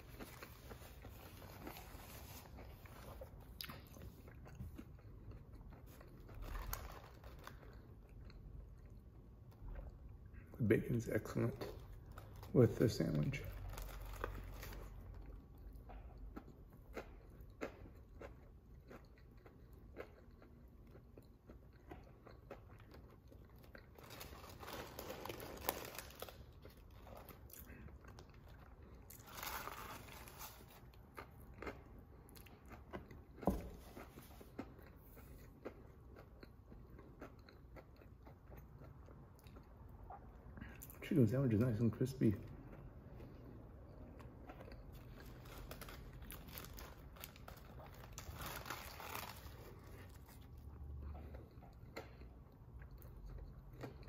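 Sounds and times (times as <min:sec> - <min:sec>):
crunchy chewing: 0:11.6 - 0:40.9, 0:44.1 - 0:54.0.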